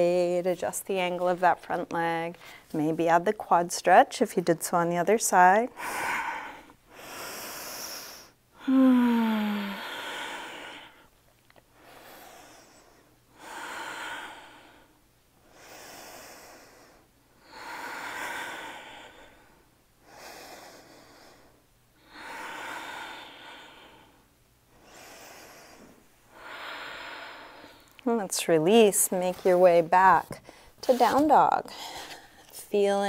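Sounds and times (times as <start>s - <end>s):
woman breathing deeply: 5.7s - 28.1s, 30.4s - 30.8s.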